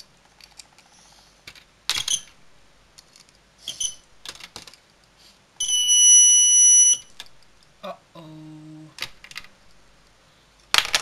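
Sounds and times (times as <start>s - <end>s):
alarm horn buzzing: 5.6s - 7.1s.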